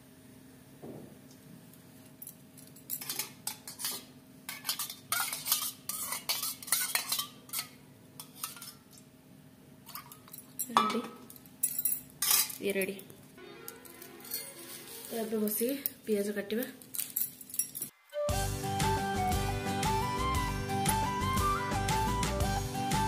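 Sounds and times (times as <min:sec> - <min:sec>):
spoon stirring in metal bowl: 0:02.7 - 0:09.0, 0:09.9 - 0:11.3.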